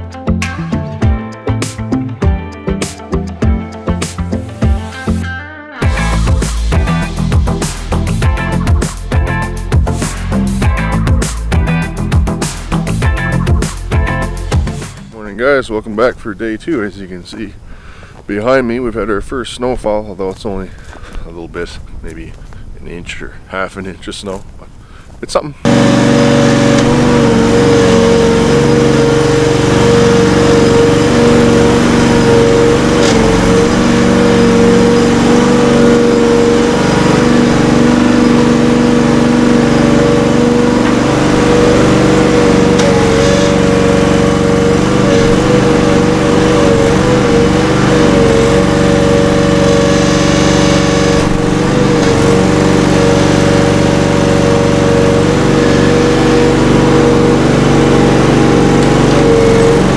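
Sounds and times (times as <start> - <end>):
tractor diesel engine running: 5.8 - 15.0, 25.7 - 59.9.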